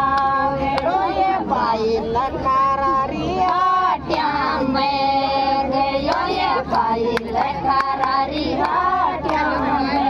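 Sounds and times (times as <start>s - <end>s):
women singing folk song: 0.0s - 10.0s
sharp hand claps: 6.1s - 10.0s.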